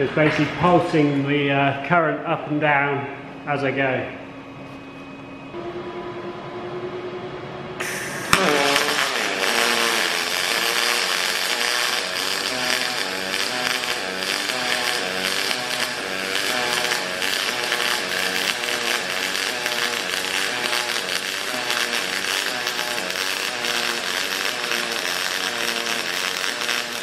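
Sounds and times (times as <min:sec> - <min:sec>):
welder humming: 0:04.6 - 0:27.0
welding arc buzzing hiss: 0:07.8 - 0:27.0
welding arc crack: 0:07.8 - 0:27.0.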